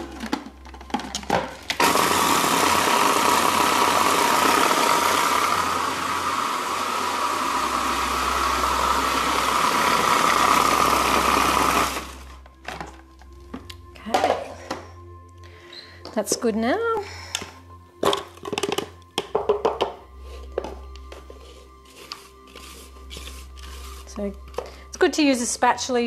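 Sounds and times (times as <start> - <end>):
food processor motor whine: 1.7 - 12.4.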